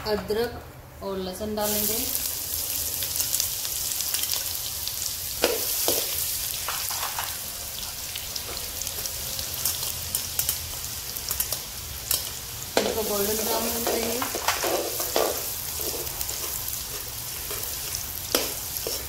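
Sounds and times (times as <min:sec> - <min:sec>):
garlic sizzling in hot oil: 0:01.6 - 0:19.0.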